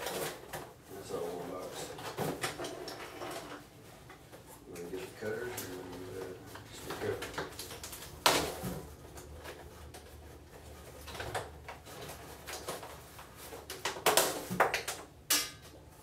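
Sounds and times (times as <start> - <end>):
rustling plastic and cardboard: 0.0 - 16.0.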